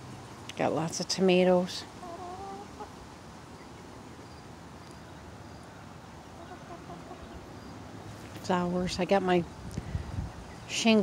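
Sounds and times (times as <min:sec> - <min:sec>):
steady outdoor hiss: 0:00.0 - 0:11.0
chickens clucking softly: 0:02.0 - 0:03.0, 0:06.4 - 0:07.6.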